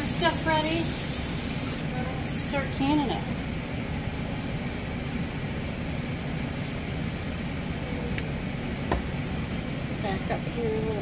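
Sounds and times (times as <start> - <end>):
syrup boiling in a pot: 0.0 - 1.9.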